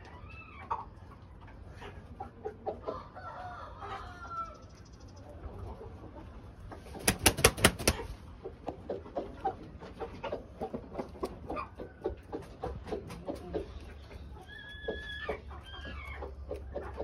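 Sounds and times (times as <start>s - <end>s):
chicken clucking: 0.0s - 17.0s
rooster flapping wings: 6.9s - 8.2s.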